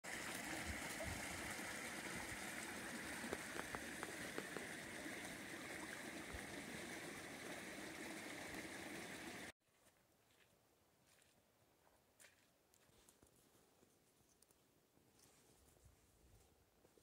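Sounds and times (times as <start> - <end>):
creek trickling over stones: 0.0 - 9.5.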